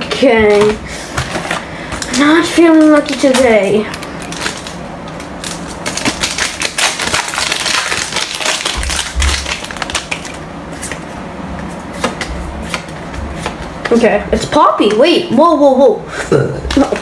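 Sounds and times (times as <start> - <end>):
cards and foil pack rustling: 0.2 - 11.0.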